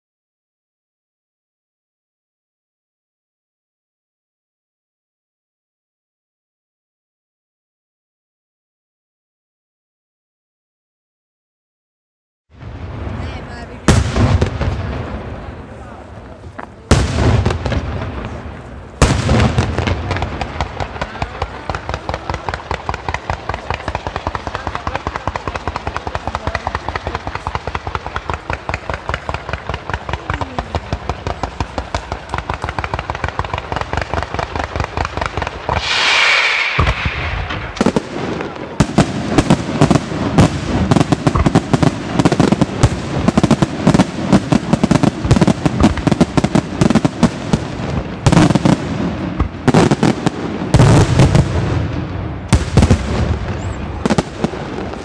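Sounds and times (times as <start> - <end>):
rapid firework pops: 16.4 - 55.0
firework hiss: 31.0 - 38.6
aerial shells bursting: 35.1 - 38.1.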